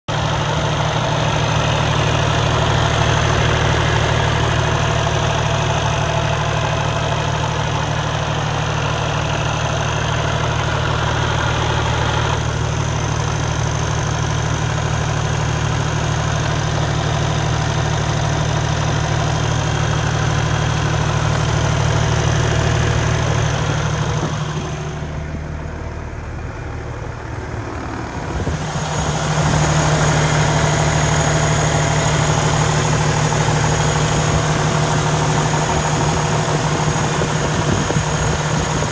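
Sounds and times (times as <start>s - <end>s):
diesel truck engine idling: 0.1s - 38.9s.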